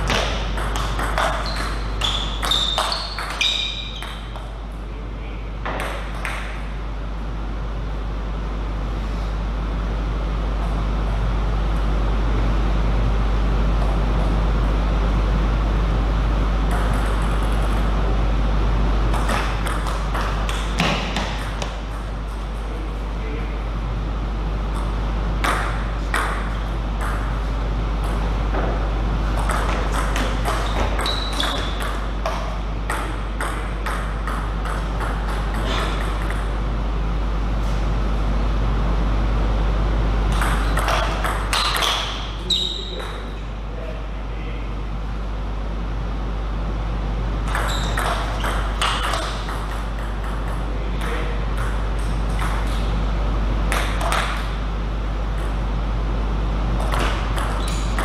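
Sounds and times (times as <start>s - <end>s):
ping pong ball clicking and bouncing: 0.0s - 4.6s, 5.6s - 6.6s, 16.7s - 17.8s, 19.1s - 22.2s, 24.7s - 27.3s, 29.4s - 36.5s, 40.3s - 42.2s, 47.5s - 52.8s, 53.7s - 54.5s, 56.8s - 58.0s
steady low hum: 0.0s - 58.0s
short high squeaks: 1.3s - 4.2s, 30.6s - 31.8s, 42.0s - 43.0s, 47.5s - 48.6s, 57.5s - 58.0s.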